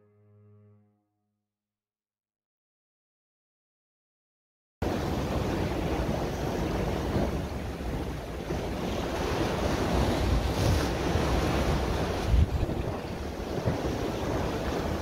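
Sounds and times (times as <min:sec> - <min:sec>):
sea waves washing on rocks: 0:04.8 - 0:15.0
wind rumbling on microphone: 0:04.8 - 0:15.0.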